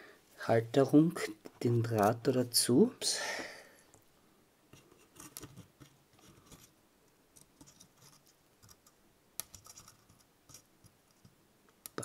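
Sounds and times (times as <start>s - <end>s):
faint clicks and scratches: 4.7s - 12.0s.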